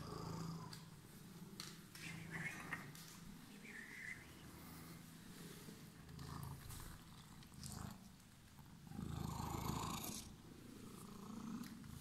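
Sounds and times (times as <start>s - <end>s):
cat purring: 0.0s - 0.9s, 3.8s - 12.0s.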